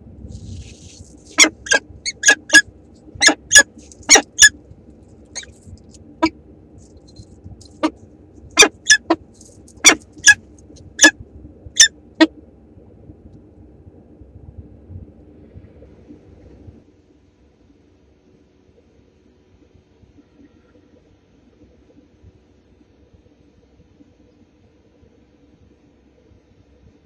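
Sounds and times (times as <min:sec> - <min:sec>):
faint low camera hum: 0:00.0 - 0:16.9
falcon chipping calls: 0:01.3 - 0:02.6, 0:03.2 - 0:04.6, 0:08.6 - 0:09.2, 0:09.8 - 0:10.4.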